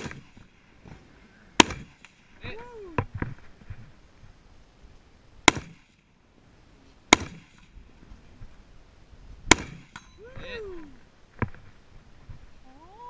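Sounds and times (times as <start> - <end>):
rifle shots with echo: 0.0 - 0.4, 1.6 - 2.3, 7.1 - 7.6, 9.5 - 10.0.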